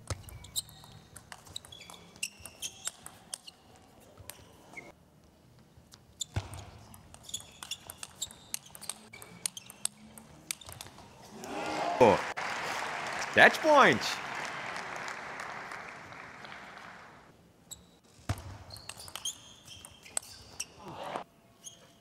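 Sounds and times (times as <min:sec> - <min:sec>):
sneakers squeaking: 0:00.0 - 0:05.0, 0:05.8 - 0:11.3, 0:17.6 - 0:22.0.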